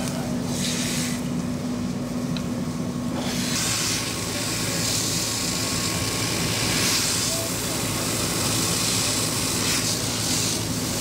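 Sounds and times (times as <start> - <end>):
fire hose water spray hissing: 0.5 - 1.3, 3.1 - 11.0.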